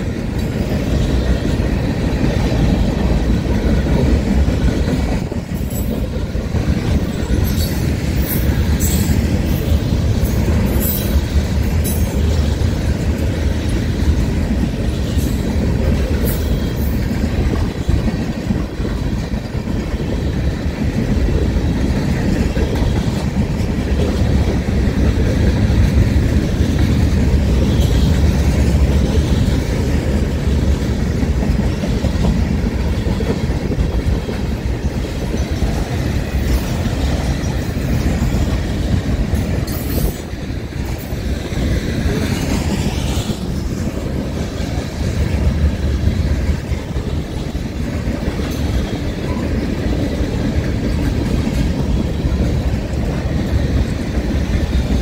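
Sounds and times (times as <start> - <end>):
steel wheels rumbling on rail: 0.0 - 55.0.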